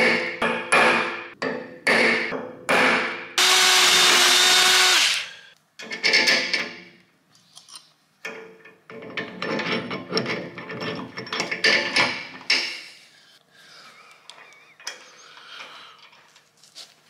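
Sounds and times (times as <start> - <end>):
metal strikes on steel plate: 0.0 - 3.4
cordless drill boring into steel: 3.4 - 5.3.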